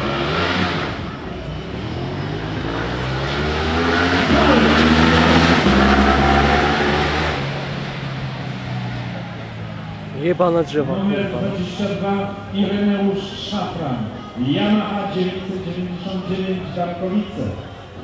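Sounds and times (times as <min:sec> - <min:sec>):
racing motorcycle passing by: 0:00.0 - 0:10.2.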